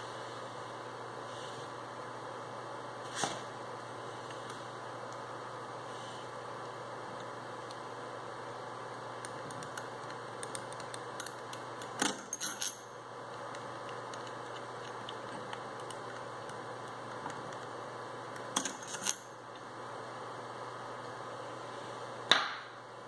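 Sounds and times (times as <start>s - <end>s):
steady background noise: 0.0s - 23.0s
metal parts clinking: 12.1s - 12.8s.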